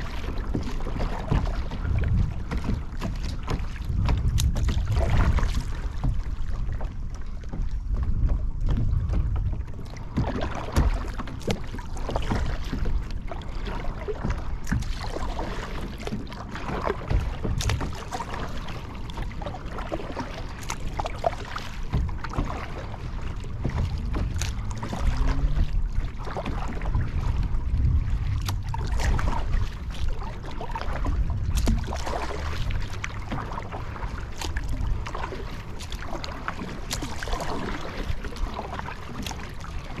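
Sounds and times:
water splashing and lapping: 0:00.0 - 0:40.0
wind rumble on microphone: 0:00.0 - 0:40.0.

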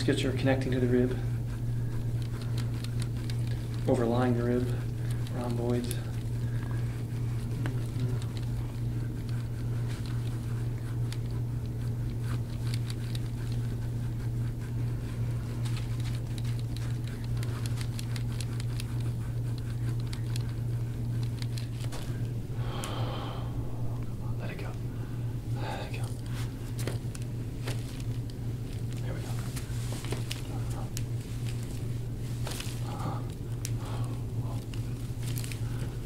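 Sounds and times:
steady low hum: 0:00.0 - 0:36.0
faint crackling and clicking: 0:01.9 - 0:04.0, 0:15.5 - 0:22.9.

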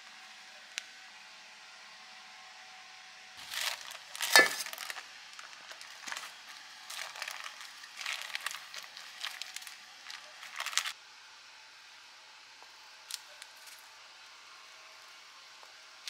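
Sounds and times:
parchment paper crinkling: 0:03.4 - 0:11.0, 0:13.1 - 0:13.8.

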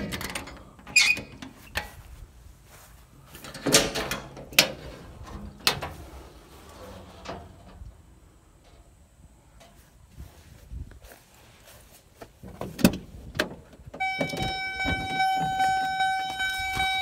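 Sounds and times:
metal latch clicks: 0:00.0 - 0:02.0, 0:03.4 - 0:06.0
metal door clunks: 0:03.5 - 0:06.0, 0:12.5 - 0:17.0.

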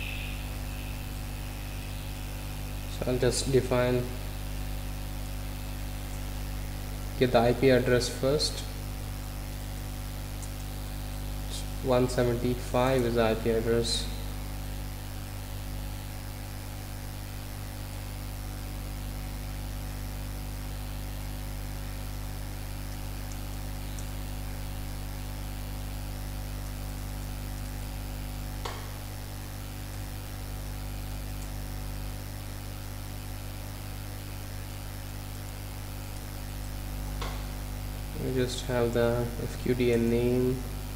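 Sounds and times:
background hiss: 0:00.0 - 0:06.5
electrical mains hum: 0:00.0 - 0:40.9.

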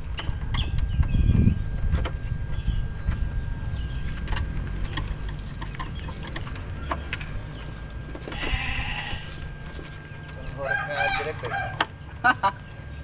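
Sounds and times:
rooster crowing: 0:10.6 - 0:11.8.

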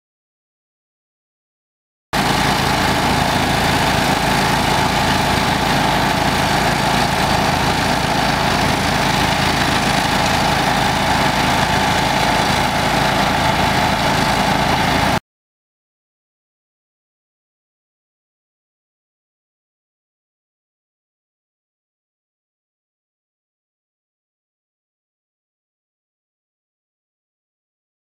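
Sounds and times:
truck engine running: 0:02.2 - 0:15.2.

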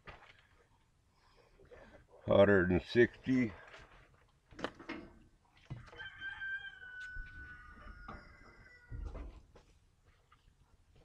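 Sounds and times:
rooster crowing: 0:05.8 - 0:09.3.

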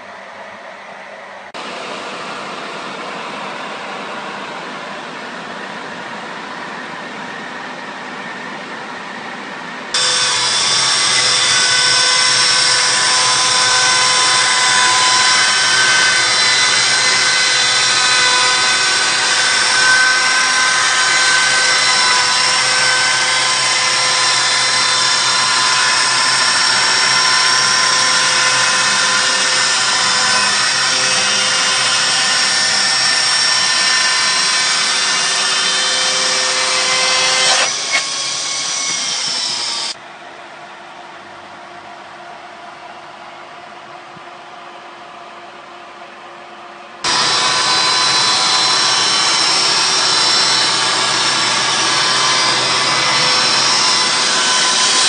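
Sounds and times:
chainsaw mill sawing wood: 0:10.0 - 0:40.0, 0:47.0 - 0:55.0.

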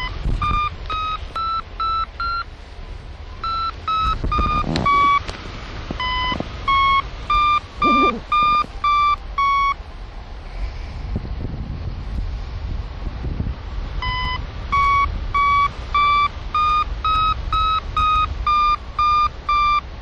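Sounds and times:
short electronic beeps: 0:00.0 - 0:02.5, 0:03.4 - 0:05.3, 0:06.0 - 0:09.8, 0:14.0 - 0:19.9
wind noise on microphone: 0:00.0 - 0:20.0.

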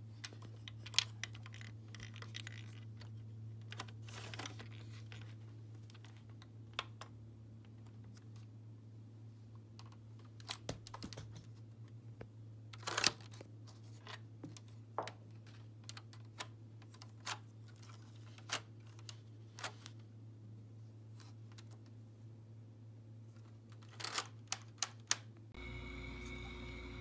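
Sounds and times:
plastic bricks clicking and rattling: 0:00.2 - 0:07.0
steady low hum: 0:25.5 - 0:27.0.

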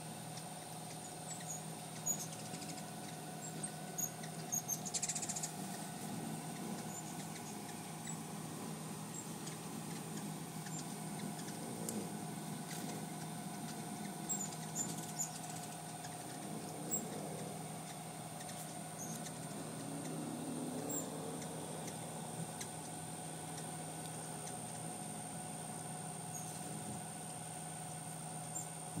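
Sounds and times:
hummingbird wings humming: 0:00.0 - 0:29.0
high squeaky bird chips: 0:00.3 - 0:08.3, 0:09.1 - 0:11.6, 0:12.5 - 0:20.2.

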